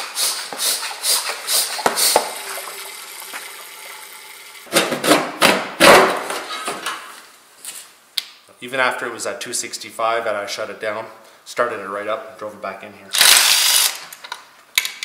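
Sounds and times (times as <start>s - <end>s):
hiss of fluid suction: 0.0s - 2.6s
hand pump strokes: 0.0s - 2.7s.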